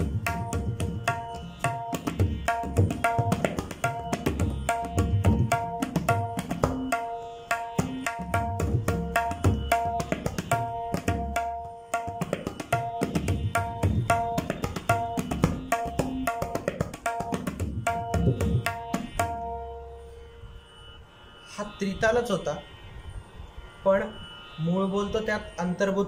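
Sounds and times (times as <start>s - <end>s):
tabla playing: 0.0s - 20.3s.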